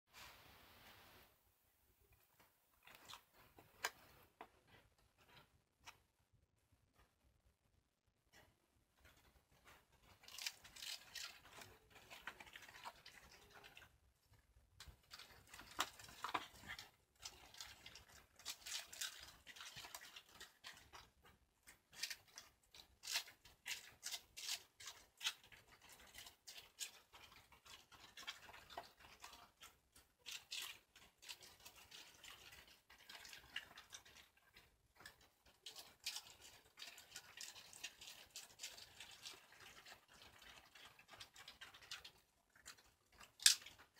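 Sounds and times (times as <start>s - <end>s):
dog crunching cabbage: 9.6s - 14.0s, 14.8s - 43.9s.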